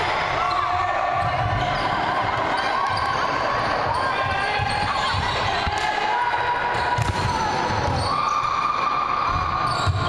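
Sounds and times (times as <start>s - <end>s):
players' voices: 0.0s - 10.0s
sneakers squeaking: 0.1s - 5.9s, 6.7s - 10.0s.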